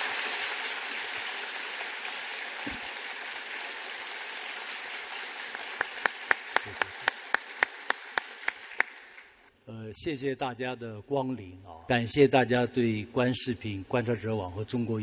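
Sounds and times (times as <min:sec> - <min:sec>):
audience applauding: 0:00.0 - 0:09.4
sharp evenly spaced claps: 0:04.9 - 0:09.5.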